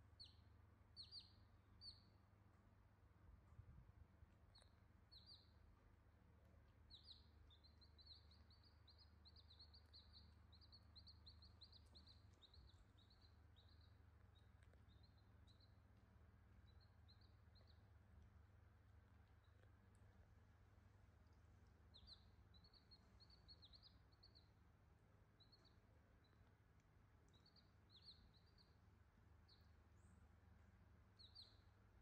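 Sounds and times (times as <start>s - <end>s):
low steady hum: 0.0s - 32.0s
chicks peeping: 0.1s - 2.2s, 4.5s - 5.7s, 6.8s - 18.6s, 19.2s - 24.6s, 25.2s - 29.8s, 31.1s - 31.8s.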